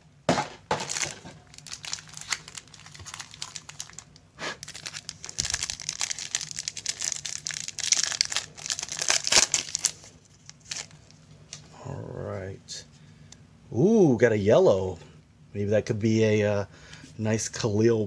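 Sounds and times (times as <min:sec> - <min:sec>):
foil pack crinkling: 0:00.7 - 0:11.2
foil tearing: 0:00.8 - 0:04.0, 0:04.6 - 0:10.9.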